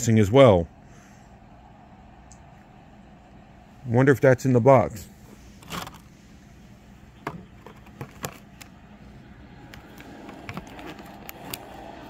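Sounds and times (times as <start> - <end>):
packaging rustling: 9.9 - 11.7.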